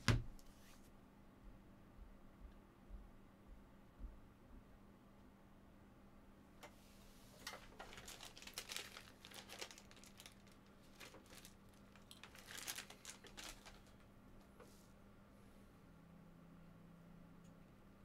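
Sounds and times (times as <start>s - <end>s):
packaging crinkling: 7.4s - 14.0s.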